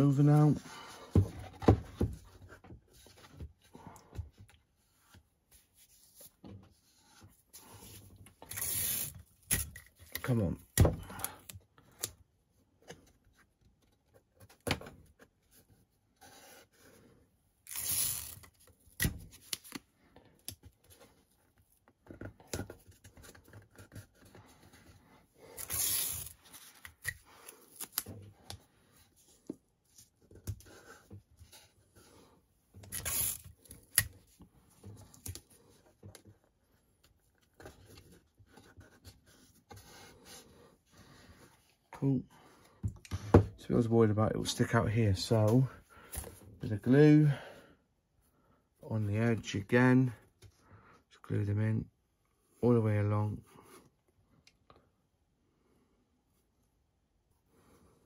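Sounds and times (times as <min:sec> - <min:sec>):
tape ripping: 0:17.7 - 0:19.8, 0:25.5 - 0:28.1, 0:32.8 - 0:34.1.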